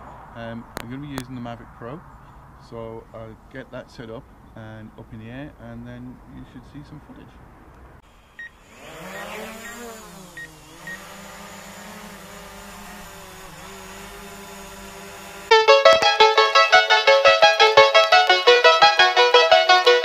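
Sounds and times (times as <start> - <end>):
drone propellers whining: 8.0 - 20.0
piano-like keyboard music: 15.5 - 20.0.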